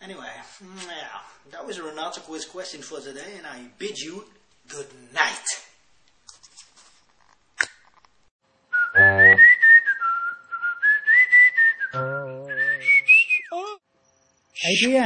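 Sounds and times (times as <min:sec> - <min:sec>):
person whistling a tune: 0:08.8 - 0:13.8.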